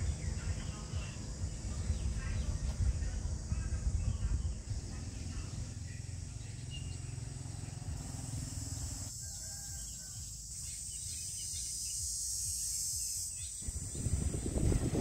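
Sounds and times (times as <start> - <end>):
low rumble: 13.6 - 15.0.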